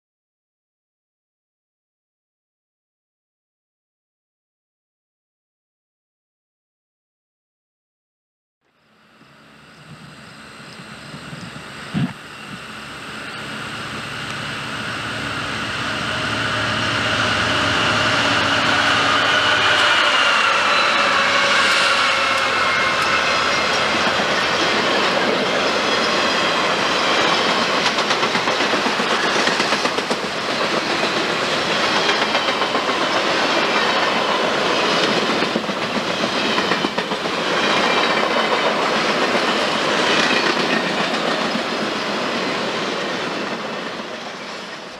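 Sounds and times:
high whine or squeal: 0:08.7 - 0:43.3
diesel locomotive engines passing: 0:08.7 - 0:44.9
train wheels clacking over rail joints: 0:19.7 - 0:44.9.

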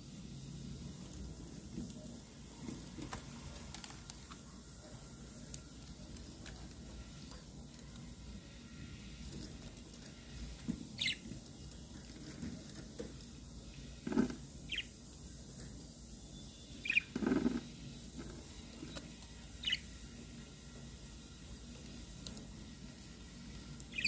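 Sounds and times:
budgerigars chirping: 0:14.7 - 0:14.9, 0:16.8 - 0:17.1.

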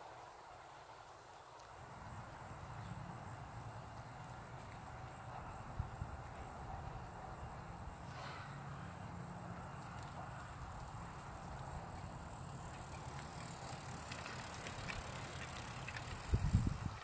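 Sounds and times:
bike rolling over concrete: 0:09.0 - 0:17.0
faint ticks: 0:09.7 - 0:16.9.

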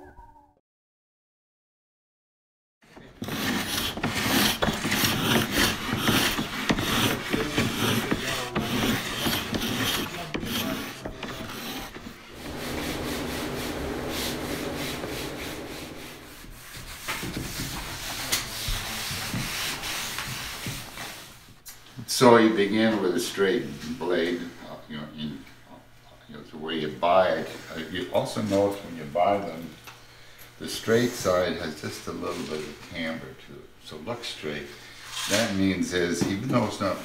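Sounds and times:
wood being scraped and sanded: 0:03.2 - 0:21.2
low hum: 0:12.2 - 0:17.2.

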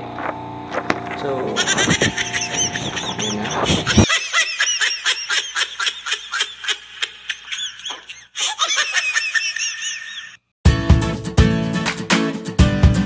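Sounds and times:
high-pitched giggling: 0:01.6 - 0:10.4.

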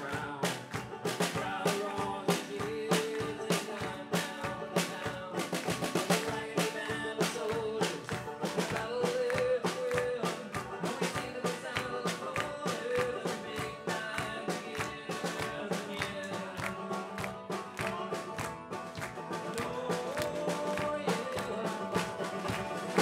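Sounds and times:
banjo: 0:00.0 - 0:23.0
drums fast beat: 0:00.0 - 0:23.0
strummed acoustic guitar: 0:00.0 - 0:23.0.

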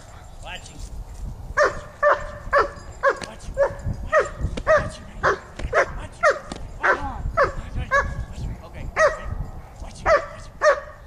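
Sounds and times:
dog barking: 0:01.6 - 0:08.2, 0:09.0 - 0:09.4, 0:10.0 - 0:11.0.

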